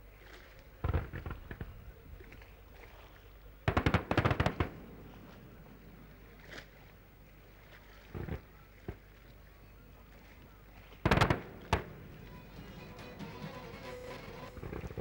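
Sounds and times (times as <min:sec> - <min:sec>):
fireworks bangs: 0:00.8 - 0:02.0, 0:03.7 - 0:06.8, 0:08.1 - 0:09.0, 0:11.0 - 0:15.0
rapid string of fireworks cracks: 0:00.8 - 0:02.5, 0:03.6 - 0:06.8, 0:11.0 - 0:15.0.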